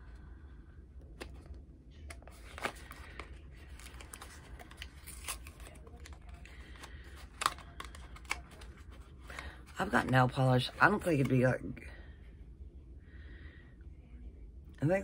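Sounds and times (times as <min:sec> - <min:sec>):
low steady hum: 0:00.0 - 0:15.0
packaging rustling and crinkling: 0:02.1 - 0:10.1.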